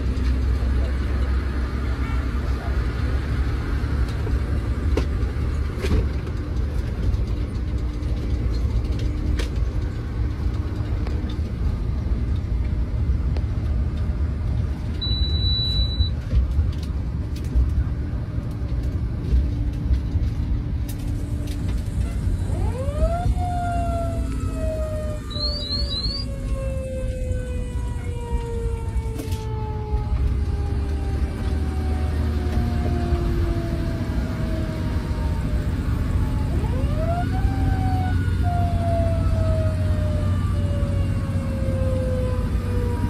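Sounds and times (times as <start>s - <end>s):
engine and road rumble: 0.0s - 43.0s
short high beep: 15.0s - 16.2s
siren winding up: 23.9s - 26.4s.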